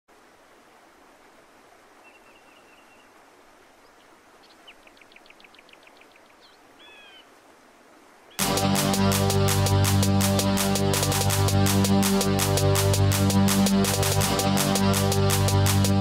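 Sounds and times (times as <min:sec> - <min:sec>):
bird calls: 0:02.0 - 0:03.2, 0:03.8 - 0:07.3.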